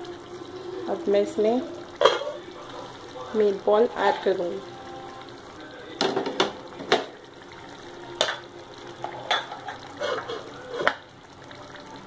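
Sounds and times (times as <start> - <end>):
gravy bubbling in pan: 0.0 - 12.0
meatballs plopping into gravy: 5.8 - 7.2.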